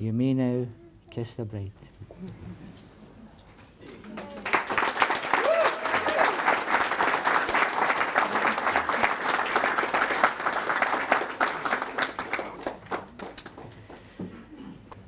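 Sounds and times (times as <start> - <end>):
people clapping: 3.8 - 14.3.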